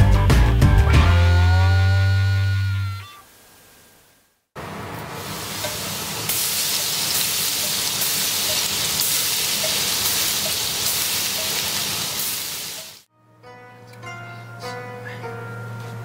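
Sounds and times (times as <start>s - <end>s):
oil sizzling in deep fryer: 4.6s - 13.1s
plucked-string music: 13.1s - 16.0s.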